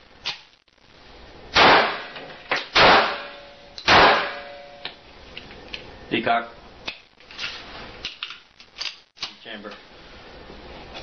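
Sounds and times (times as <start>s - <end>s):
gunshots with echo: 1.6s - 4.6s.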